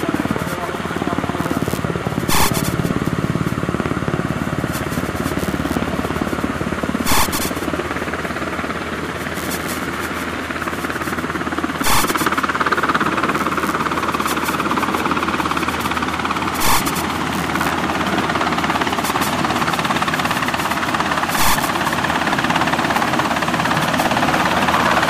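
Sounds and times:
helicopter rotor chop: 0.0s - 25.0s
loud bursts of noise: 1.5s - 3.5s, 7.0s - 7.7s, 11.7s - 22.8s.

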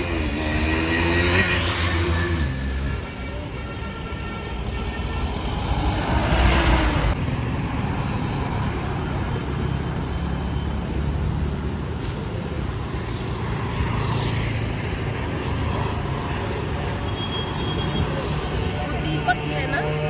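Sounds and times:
motorbikes and cars passing: 0.0s - 3.5s, 5.2s - 20.0s.

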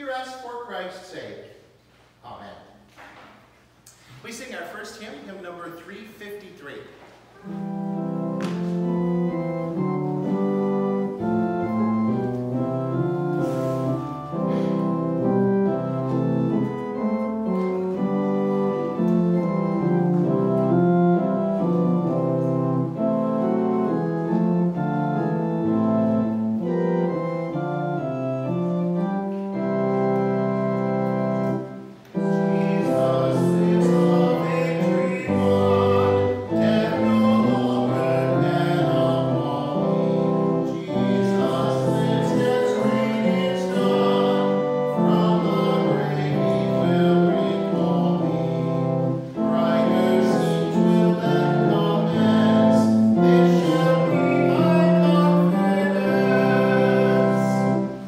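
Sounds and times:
organ playing a hymn: 4.2s - 58.0s
voices singing: 32.2s - 58.0s.

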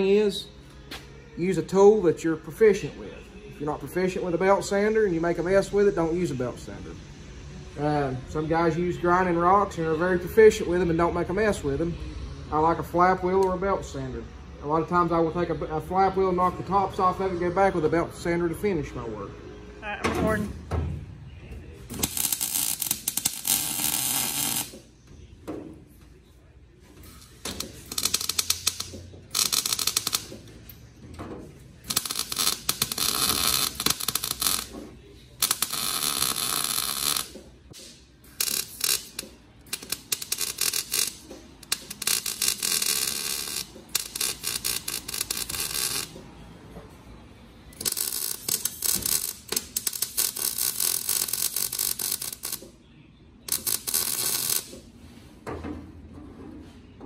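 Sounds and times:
crackling welding bursts: 21.9s - 24.8s, 27.5s - 30.5s, 31.8s - 34.8s, 35.4s - 46.2s, 47.8s - 52.6s, 53.5s - 54.8s.

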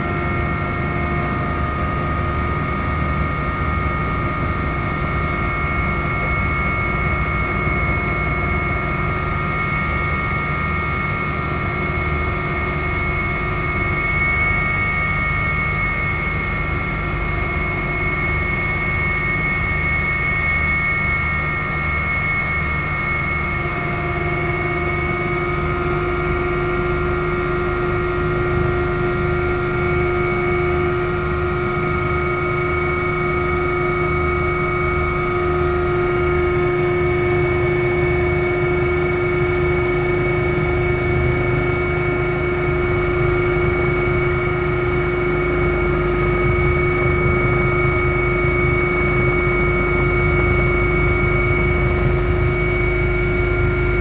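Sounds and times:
helicopter engines and rotor: 0.0s - 54.0s.

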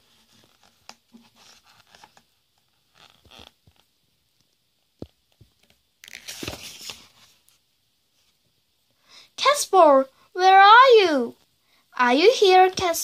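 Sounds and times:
paper pages rustling: 0.0s - 3.9s, 5.6s - 7.6s
page turning swish: 6.0s - 7.3s.

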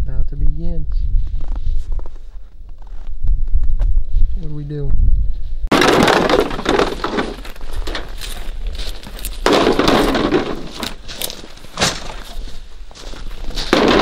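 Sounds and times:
plastic decoys rustling and knocking: 5.7s - 14.0s
footsteps crunching on snow: 7.0s - 14.0s.

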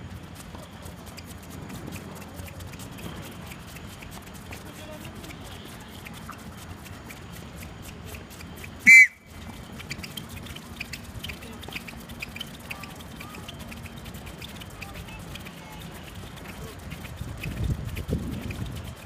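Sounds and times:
shoes pattering on hard court: 0.0s - 19.0s
shoe squeal: 8.6s - 16.8s.

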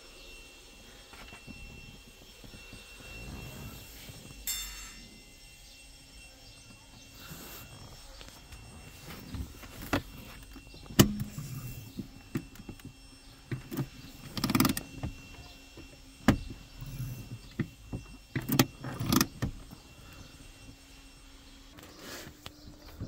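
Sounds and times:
clicks and knocks in car cabin: 10.7s - 12.9s.

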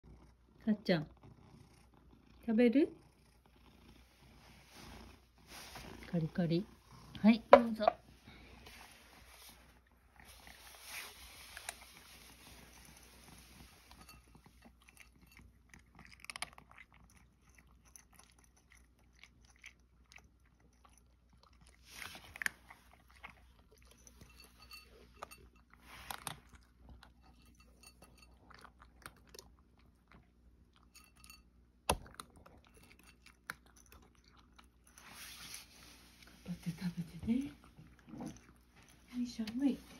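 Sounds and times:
cat crunching dry kibble: 8.5s - 30.9s, 31.9s - 39.9s.

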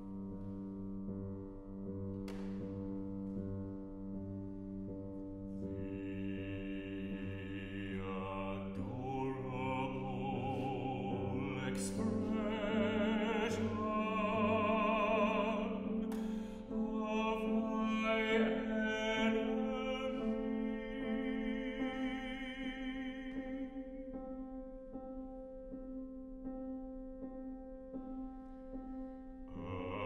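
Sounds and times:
piano accompaniment: 0.0s - 30.0s
baritone singing: 5.8s - 23.8s.

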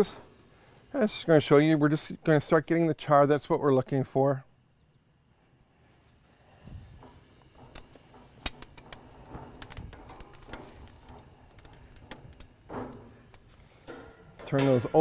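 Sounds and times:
metal tongs clicking on grill grate: 7.6s - 15.0s.

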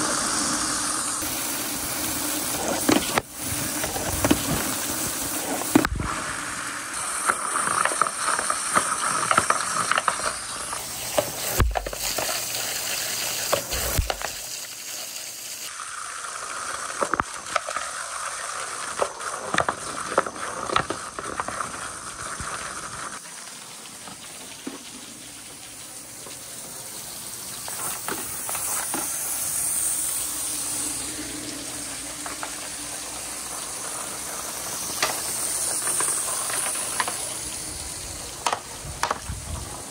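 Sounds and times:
water gushing down metal gutters: 0.0s - 39.9s
wooden balls knocking on gutters: 38.4s - 39.4s.

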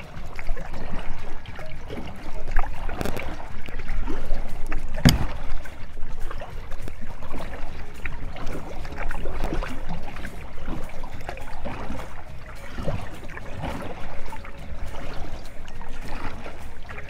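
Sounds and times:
paddle strokes splashing water: 0.0s - 17.0s
sharp knock: 5.0s - 5.5s.

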